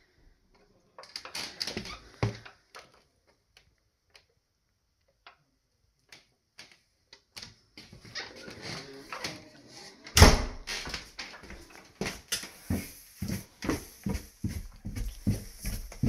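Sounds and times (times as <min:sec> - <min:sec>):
footsteps on carpet: 0:11.0 - 0:16.0.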